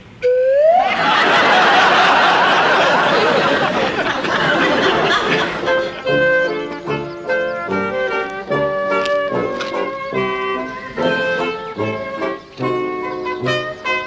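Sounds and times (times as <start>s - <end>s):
rising cry: 0.2s - 8.1s
audience laughing: 0.8s - 6.6s
music with held notes: 4.2s - 14.0s.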